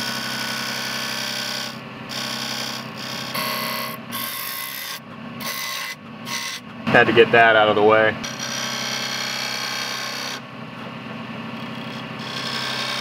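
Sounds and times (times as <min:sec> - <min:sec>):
lathe motor hum: 0:00.0 - 0:13.0
chisel scraping wood: 0:11.6 - 0:13.0.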